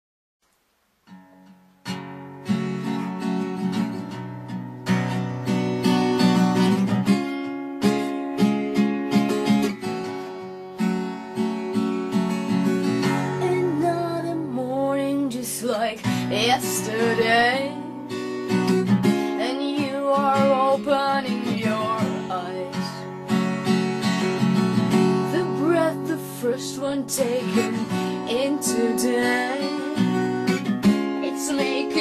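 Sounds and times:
acoustic guitar strumming: 1.0s - 32.0s.

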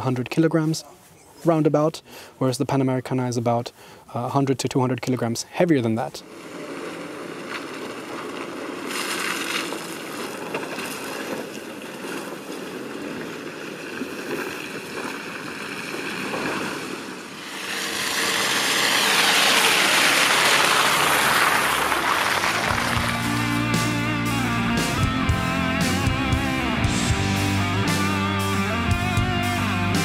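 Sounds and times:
van engine and tyres running: 6.2s - 15.9s, 17.1s - 30.0s
loud rushing noise: 17.3s - 28.1s.

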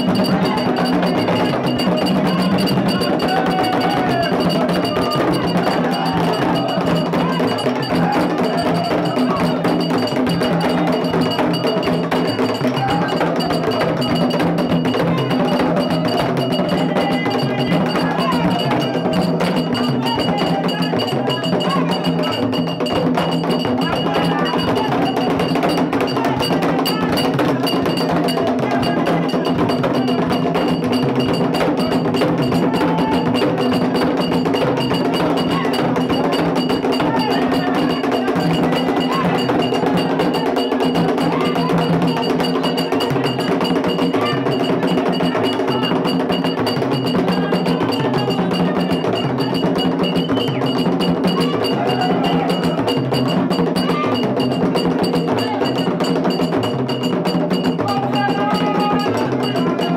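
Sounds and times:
group singing: 0.0s - 59.9s
hand drums: 0.0s - 59.9s
metal bell struck in a beat: 0.0s - 59.9s.

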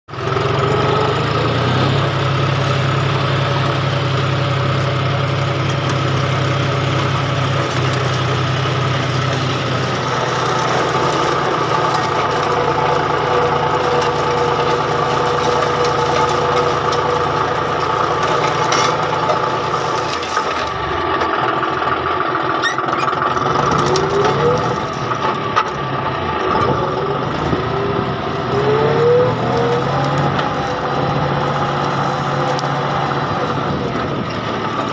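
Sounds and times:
tractor diesel engine running: 0.1s - 34.9s.

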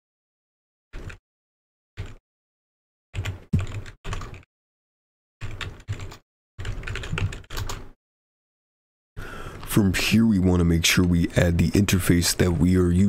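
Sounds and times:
computer keyboard typing: 2.0s - 2.2s, 3.2s - 4.5s, 5.4s - 8.0s.

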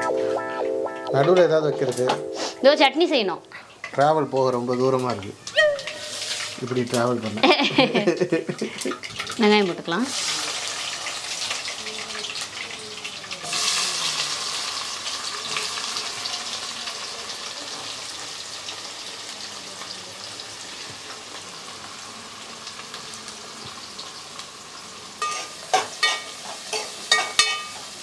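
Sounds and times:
onions sizzling in hot oil: 1.9s - 28.0s
metal spoon scraping pot: 5.8s - 7.0s.

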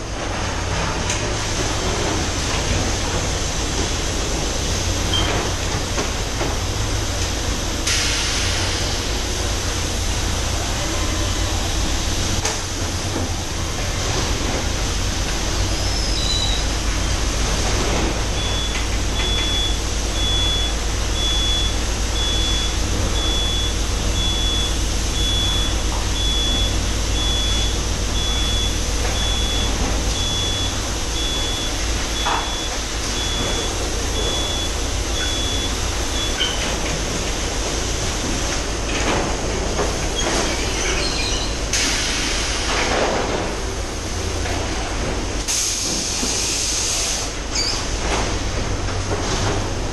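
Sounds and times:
machinery clicks and clatter: 0.0s - 9.2s, 25.2s - 49.9s
machinery hum: 0.0s - 49.9s
high electronic warning beep: 18.2s - 36.7s.

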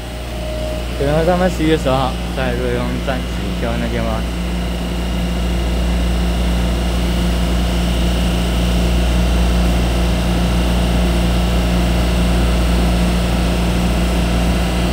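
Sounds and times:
train rumble: 0.0s - 7.7s
electric train hum: 0.0s - 14.9s.

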